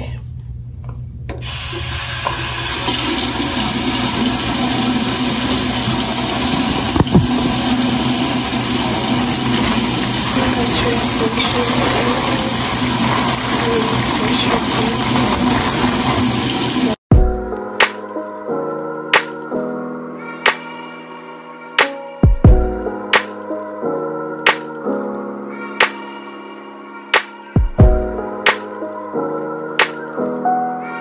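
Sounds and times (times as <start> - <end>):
tap water running into sink: 1.4 - 17.0.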